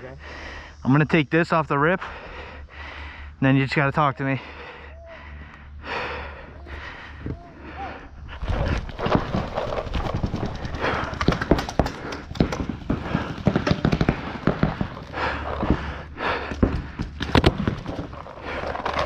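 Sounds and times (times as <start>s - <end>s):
paintballs slapping inflatable bunkers: 8.4s - 19.0s
player running with rustling gear: 8.4s - 19.0s
paintball markers firing: 9.0s - 15.8s.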